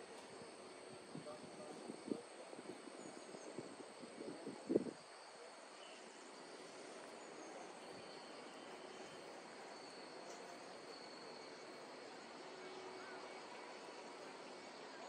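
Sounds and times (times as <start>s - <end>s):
low background hiss: 0.0s - 15.0s.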